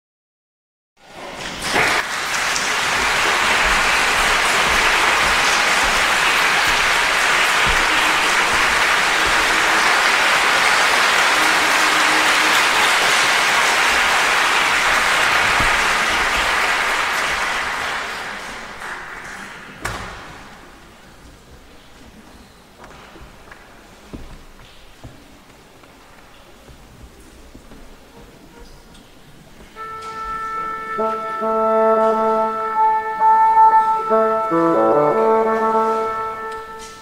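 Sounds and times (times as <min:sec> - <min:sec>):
audience applauding: 0:01.3 - 0:20.2.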